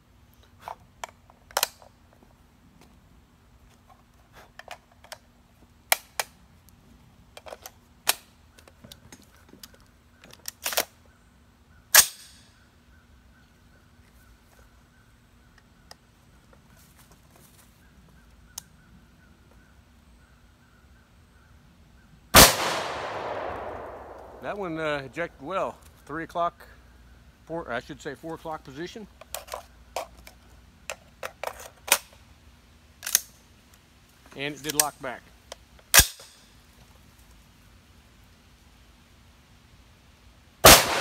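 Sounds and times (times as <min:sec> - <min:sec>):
metallic clicks of rifle loading: 0:09.6 - 0:11.0, 0:33.0 - 0:33.8, 0:34.6 - 0:36.4.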